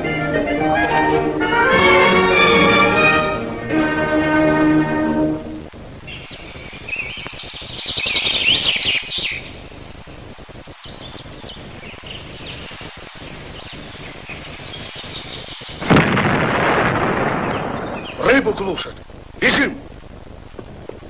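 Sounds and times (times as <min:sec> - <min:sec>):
songbirds chirping and trilling: 0:02.3 - 0:18.7.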